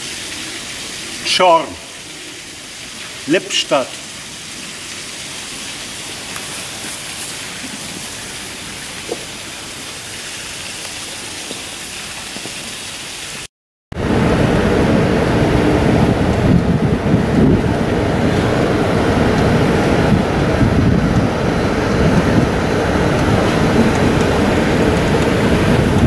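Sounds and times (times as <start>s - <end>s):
wet street ambience hiss: 0.0s - 13.5s.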